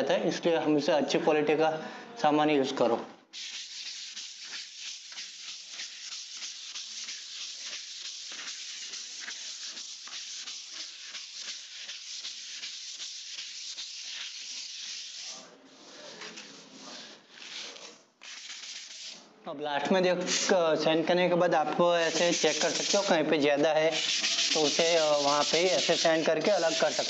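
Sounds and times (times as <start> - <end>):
sandpaper rubbing on wall: 3.3 - 19.2, 22.0 - 23.2, 23.8 - 27.0.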